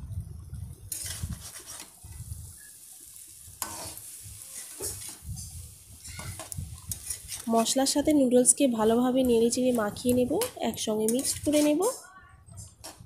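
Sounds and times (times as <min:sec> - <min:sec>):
noodles frying sizzle: 0:00.7 - 0:12.0
metal spatula scraping a pan: 0:00.9 - 0:02.0, 0:03.6 - 0:08.0, 0:09.6 - 0:13.0.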